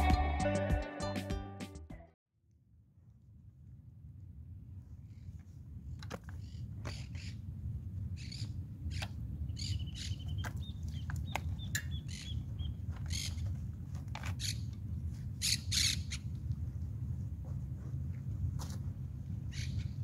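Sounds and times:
small birds chirping: 8.2 - 13.5.

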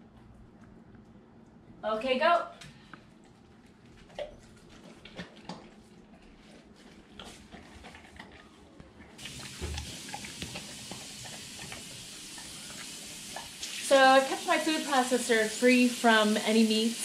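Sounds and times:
dog chewing wet food: 3.2 - 13.5
steady hiss: 9.2 - 17.0.

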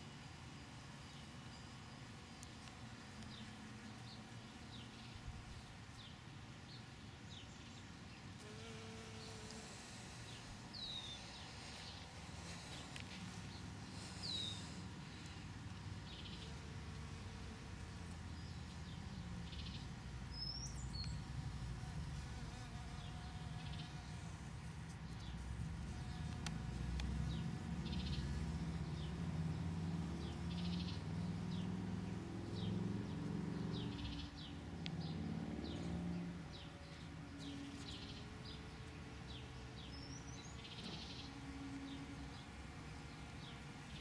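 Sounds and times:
small birds chirping: 2.4 - 17.0, 17.8 - 21.4, 24.9 - 44.0
honeybee buzzing: 8.4 - 30.6.

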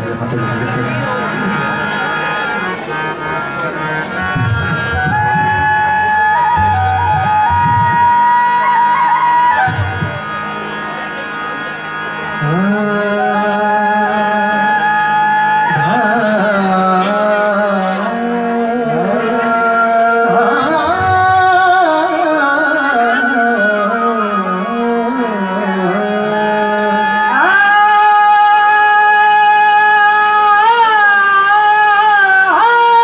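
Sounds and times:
harmonium: 0.0 - 33.0
tabla: 0.0 - 33.0
man singing ornamented notes: 12.2 - 33.0.

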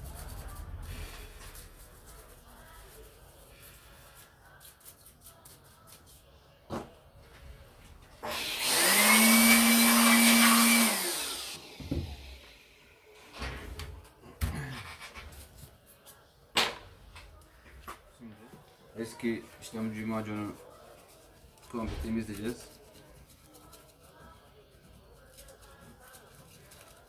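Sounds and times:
electric air blower whining: 8.2 - 12.6.

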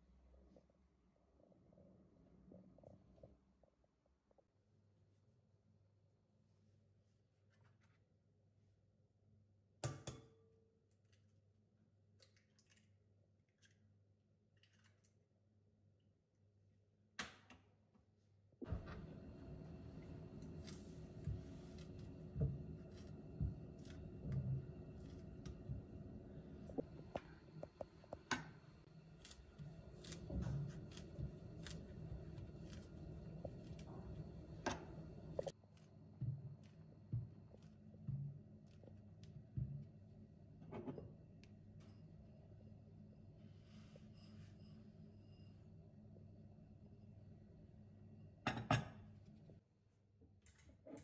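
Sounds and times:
eggshell crackling: 28.8 - 35.9
soft squishes: 28.8 - 40.1.

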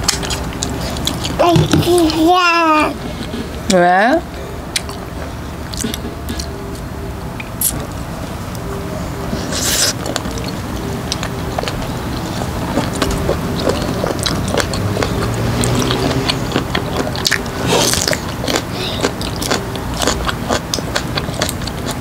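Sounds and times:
wet sticky chewing: 0.0 - 1.4, 5.7 - 6.5, 9.5 - 22.0.

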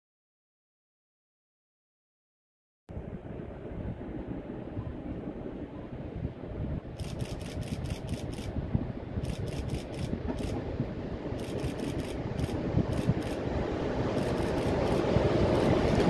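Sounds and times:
electric locomotive rumble: 2.9 - 16.0
rapid sharp clicks: 7.0 - 8.5, 9.2 - 10.6, 11.3 - 13.4, 14.1 - 16.0.

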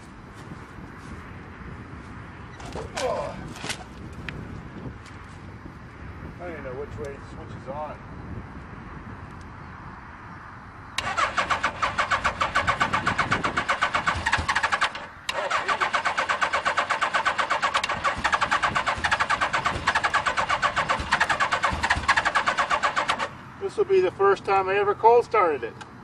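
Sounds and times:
engine cranking: 11.0 - 23.4
starter motor whine: 11.0 - 23.4.

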